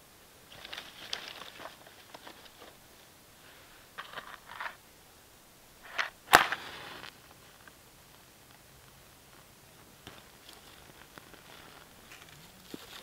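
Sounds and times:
rustling handling noises: 0.5 - 3.1, 3.9 - 4.8, 10.0 - 13.0.

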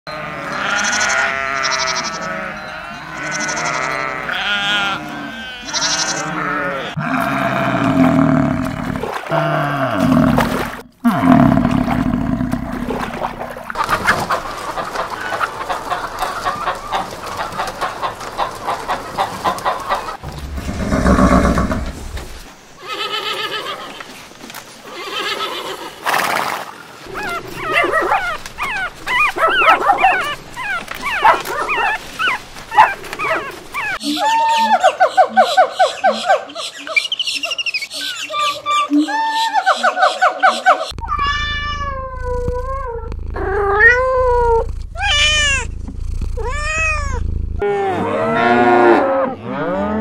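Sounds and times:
animal calls: 27.0 - 42.6
small dog yipping and whimpering: 27.2 - 35.2.

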